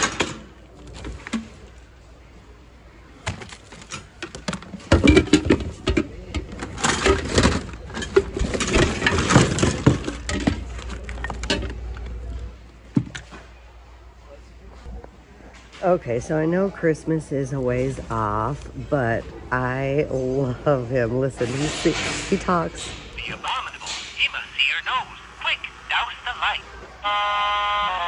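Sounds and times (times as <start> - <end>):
household junk clattering: 3.3 - 12.0.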